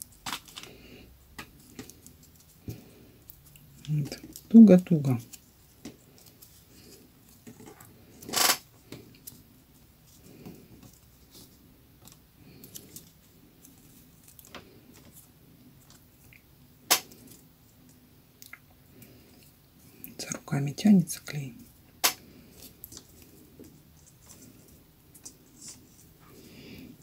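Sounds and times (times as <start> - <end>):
newspaper rustling and crackling: 0.0 - 0.8.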